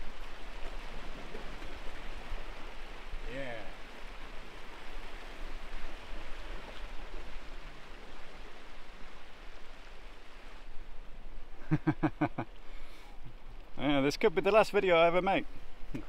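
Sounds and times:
sea surf: 0.0 - 15.7
wind: 0.0 - 16.0.

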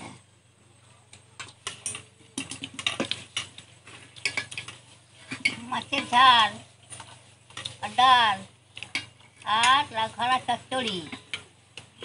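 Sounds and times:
metal plates clinking and scraping: 1.6 - 7.8.

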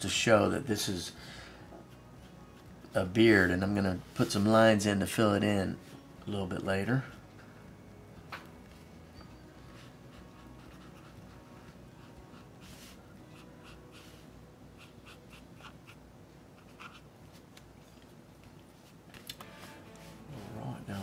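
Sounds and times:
brush pen strokes on paper: 9.6 - 16.0.

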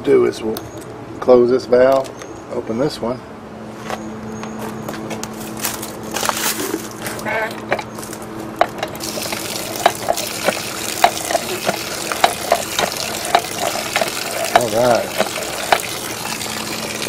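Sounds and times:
hand pump knocking: 8.6 - 17.0
water gushing from pump spout: 9.0 - 17.0.

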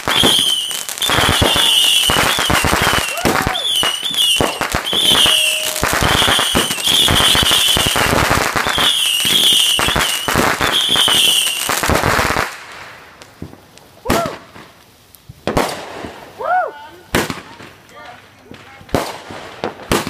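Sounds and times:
firework whistles: 0.0 - 12.7
firework crackling: 0.0 - 20.0.

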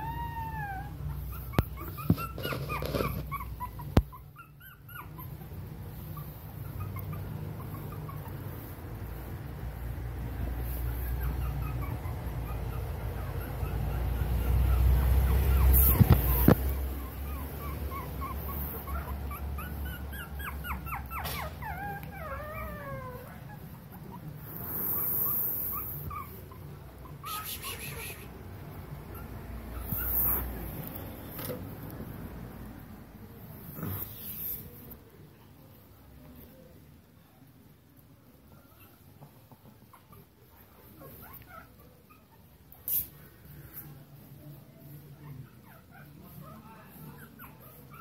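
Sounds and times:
dog whining: 0.0 - 31.4, 33.3 - 34.9, 38.5 - 43.1
puppy whimpering: 0.0 - 32.2, 33.2 - 36.8, 38.3 - 48.0
puppy yelping: 0.0 - 32.2, 38.4 - 48.0.

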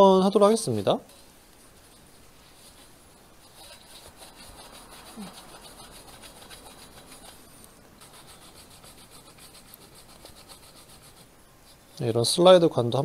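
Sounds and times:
cloth swab rubbing inside trumpet: 1.6 - 12.0.

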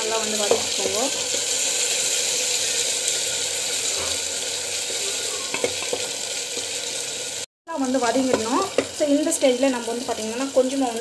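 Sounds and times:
paste sizzling in hot oil: 0.0 - 11.0
spatula stirring in metal pot: 8.0 - 9.1.

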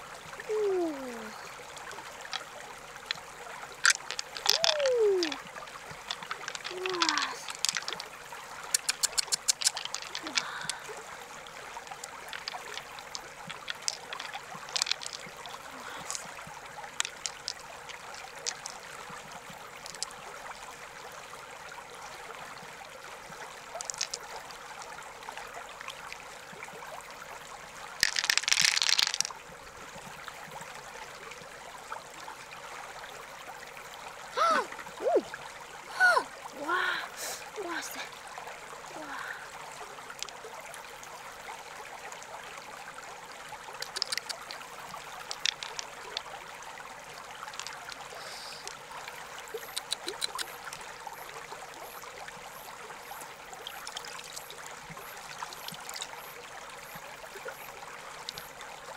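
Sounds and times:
flowing river water: 0.0 - 58.9
sharp clicks and knocks: 43.8 - 44.6.

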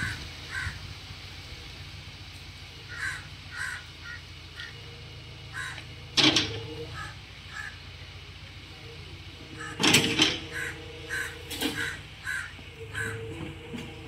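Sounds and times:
crows cawing: 0.0 - 0.8, 2.9 - 4.8, 5.5 - 6.0, 6.9 - 7.8, 9.6 - 13.3.

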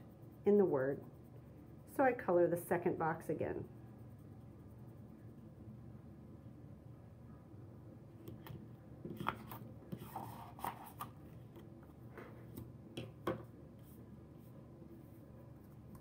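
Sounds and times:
paper sliding rustle: 9.2 - 11.2.

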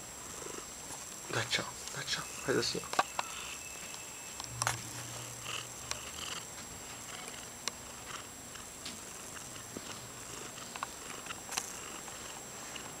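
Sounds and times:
cat purring: 0.2 - 1.7, 4.8 - 13.0.

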